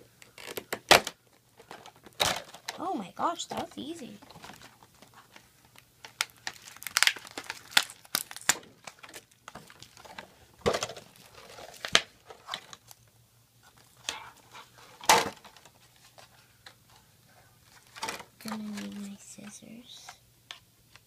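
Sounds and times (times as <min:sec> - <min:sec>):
packaging snapping: 0:00.2 - 0:02.8, 0:04.3 - 0:13.0
plastic packaging crinkling: 0:00.2 - 0:03.5, 0:04.1 - 0:17.0, 0:17.6 - 0:20.0.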